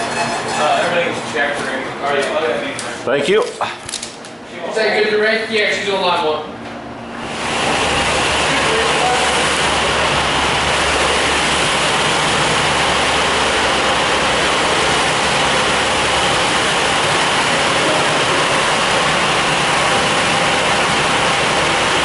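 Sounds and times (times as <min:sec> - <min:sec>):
pressure washer spraying water: 0:07.2 - 0:22.0.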